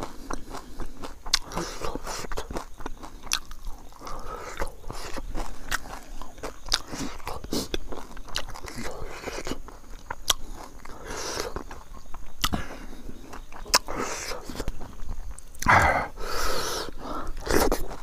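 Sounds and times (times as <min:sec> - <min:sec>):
person chewing with mouth smacks: 0:00.0 - 0:18.0
rushing mouth or breath sound: 0:15.6 - 0:17.8.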